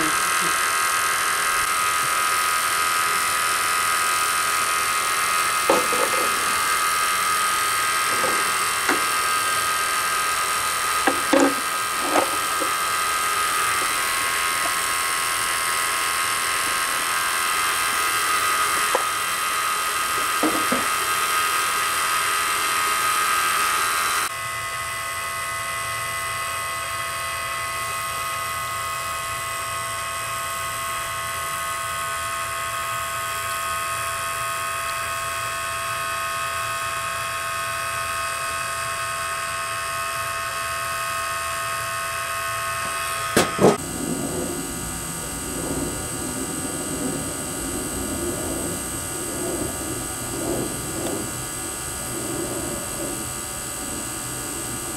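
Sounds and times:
low machine hum: 0:00.0 - 0:24.3, 0:42.6 - 0:54.9
vacuum pump whining: 0:00.0 - 0:54.9.

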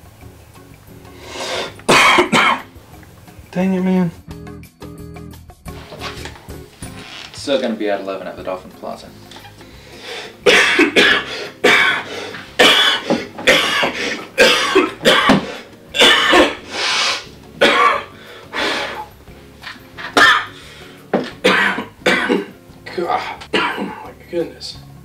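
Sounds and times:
man coughing harshly: 0:01.9 - 0:02.7, 0:10.4 - 0:16.6, 0:17.6 - 0:18.2, 0:20.2 - 0:20.6, 0:21.4 - 0:24.1.

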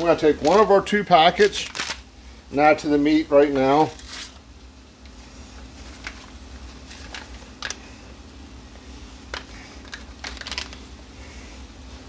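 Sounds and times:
paper packet crinkling: 0:00.0 - 0:02.1, 0:03.6 - 0:04.4, 0:05.8 - 0:07.9, 0:09.3 - 0:10.9
steady low hum: 0:00.0 - 0:12.0.

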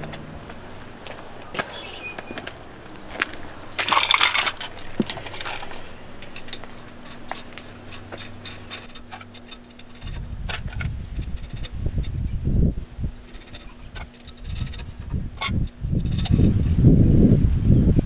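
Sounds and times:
low rumble: 0:00.0 - 0:18.0
metal lug nuts jangling: 0:01.5 - 0:12.4, 0:13.2 - 0:16.5.

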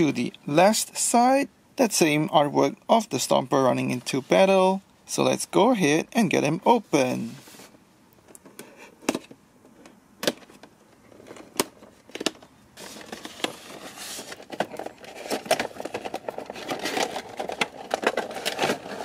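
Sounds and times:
cardboard and plastic crinkling: 0:10.3 - 0:19.0.

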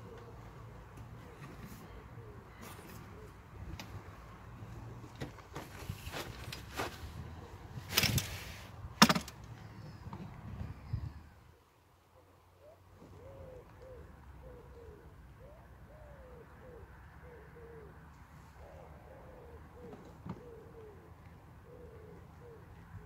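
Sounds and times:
pigeon cooing: 0:00.0 - 0:04.0, 0:12.2 - 0:23.0.

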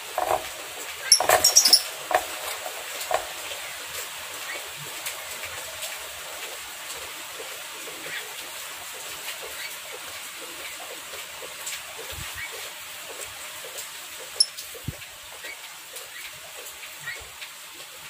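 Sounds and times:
wire cage rattling: 0:00.0 - 0:04.0
bird squeaking: 0:01.0 - 0:01.9.

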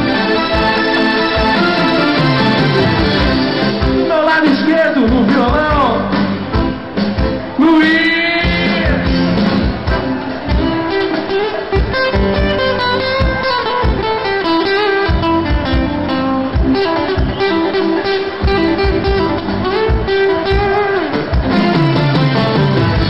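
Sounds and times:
sustained melody notes: 0:00.0 - 0:04.8
steady drum beat: 0:00.0 - 0:23.0.

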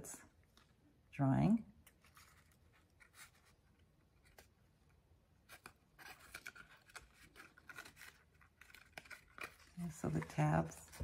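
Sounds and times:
cardstock rustling and ticking: 0:04.2 - 0:11.0.

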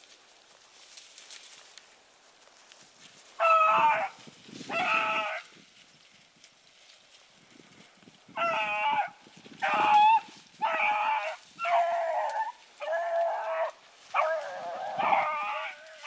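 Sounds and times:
hounds baying: 0:03.4 - 0:05.5, 0:08.4 - 0:16.0.

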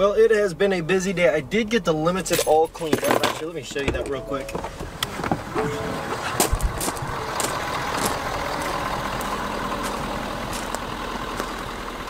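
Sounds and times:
truck engine idling: 0:03.7 - 0:12.0.

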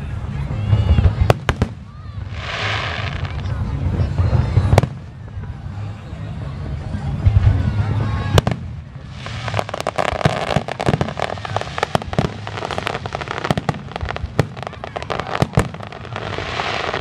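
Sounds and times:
steady hiss: 0:08.5 - 0:17.0.

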